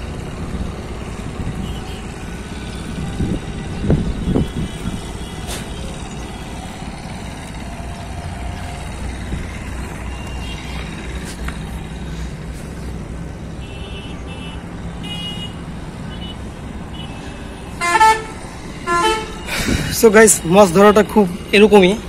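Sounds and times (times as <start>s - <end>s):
distant road traffic rumble: 0.0s - 22.0s
faint vehicle horn: 16.2s - 19.5s.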